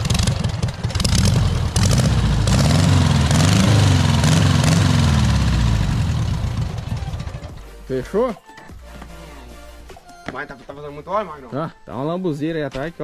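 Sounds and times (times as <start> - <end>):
buggy engine running: 0.0 - 7.7.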